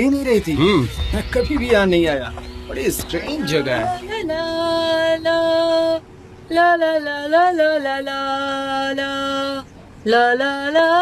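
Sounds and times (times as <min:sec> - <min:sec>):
slow melody of long held notes: 0:00.3 - 0:06.0.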